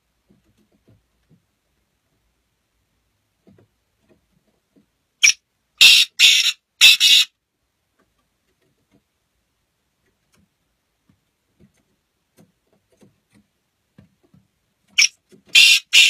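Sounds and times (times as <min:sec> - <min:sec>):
bird harsh calls: 0:05.2 - 0:07.3, 0:15.0 - 0:16.0.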